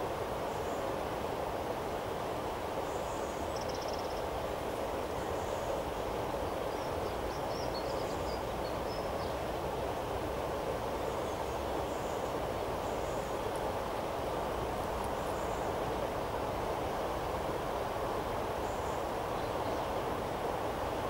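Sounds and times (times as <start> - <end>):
faint bird chirps: 2.9 - 4.3.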